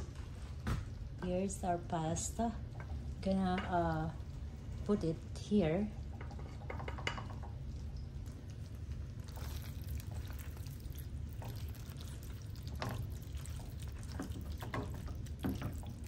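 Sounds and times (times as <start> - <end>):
wet squelching stirring: 5.9 - 16.0.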